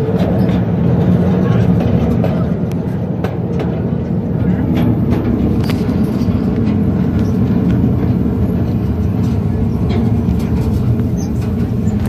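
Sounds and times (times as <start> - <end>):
miniature train rumbling on track: 0.0 - 12.0.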